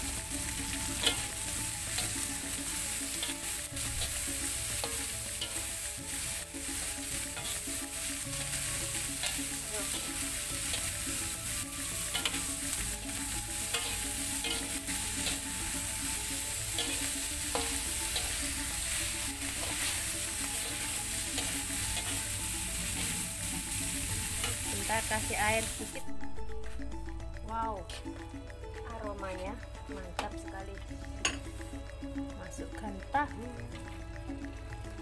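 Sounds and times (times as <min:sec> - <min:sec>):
food sizzling in hot oil: 0:00.0 - 0:35.0
spatula scraping a pan: 0:00.8 - 0:23.4.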